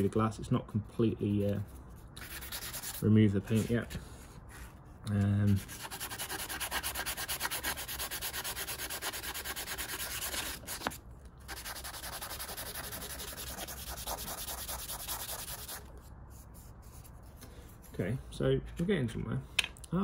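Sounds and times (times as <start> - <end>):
plastic rubbing on sandpaper: 1.5 - 3.8, 5.4 - 17.2.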